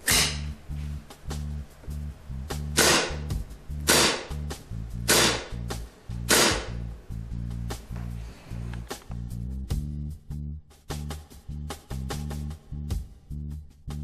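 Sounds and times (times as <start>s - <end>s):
airsoft pistol shots with gas hiss: 0.0s - 0.5s, 2.8s - 3.3s, 3.9s - 4.4s, 5.1s - 5.6s, 6.3s - 6.8s
background music: 0.0s - 14.0s.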